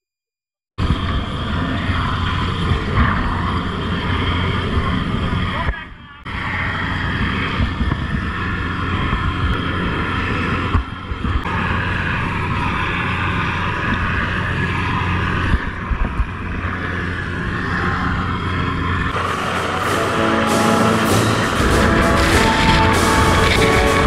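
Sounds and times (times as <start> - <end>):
helicopter engine and rotor hum: 0.8 - 24.0
wind on microphone: 0.8 - 24.0
rotor downwash rushing: 6.3 - 24.0.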